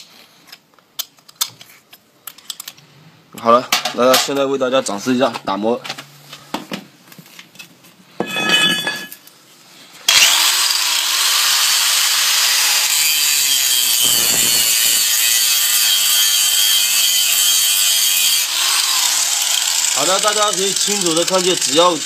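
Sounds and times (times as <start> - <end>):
angle grinder grinding steel: 10.1 - 22.0.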